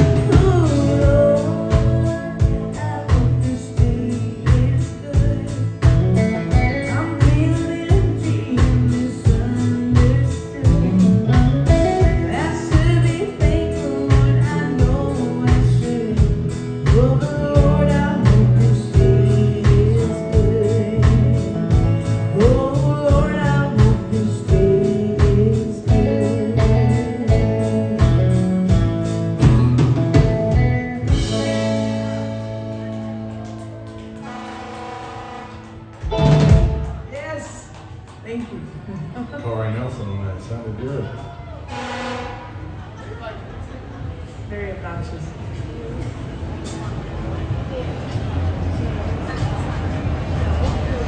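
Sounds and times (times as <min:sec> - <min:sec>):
woman singing: 0:00.0 - 0:28.4
steady drum beat: 0:00.0 - 0:33.0, 0:35.6 - 0:37.2
country band playing: 0:00.0 - 0:42.8.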